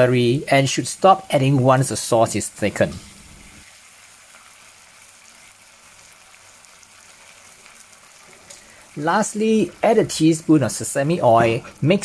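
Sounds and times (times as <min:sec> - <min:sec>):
vegetables sizzling in a frying pan: 0:00.7 - 0:12.0.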